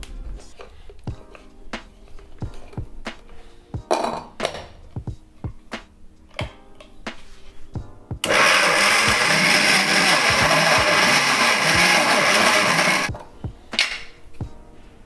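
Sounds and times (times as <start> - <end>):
mixer grinder grinding peanuts: 8.2 - 13.1.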